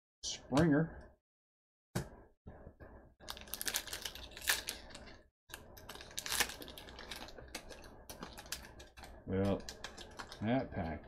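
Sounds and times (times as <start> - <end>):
foil wrapper crinkling and tearing: 3.2 - 10.5.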